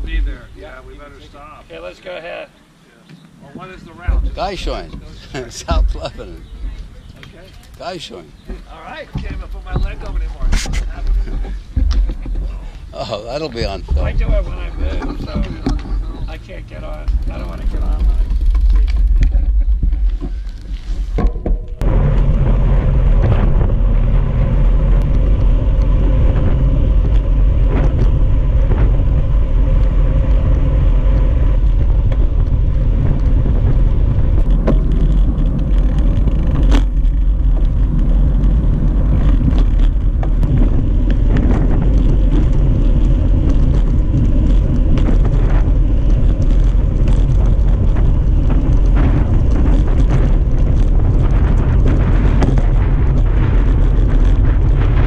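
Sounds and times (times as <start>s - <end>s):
wind buffeting microphone: 0.0s - 2.8s, 3.4s - 55.0s
tyre and road noise: 0.0s - 55.0s
small clicks and rattles: 14.9s - 20.7s, 31.6s - 55.0s.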